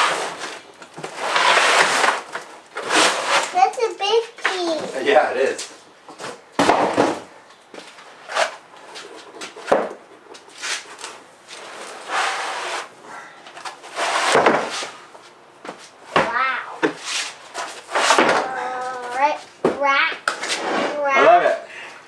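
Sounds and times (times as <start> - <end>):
foam rubbing and scraping: 0.0 - 4.0, 8.1 - 9.2, 10.5 - 13.0, 13.7 - 16.0, 16.9 - 19.5, 20.4 - 21.2.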